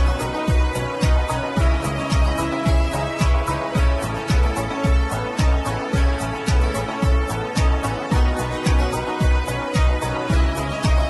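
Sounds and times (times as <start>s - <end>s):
kick drum beat: 0.0s - 11.0s.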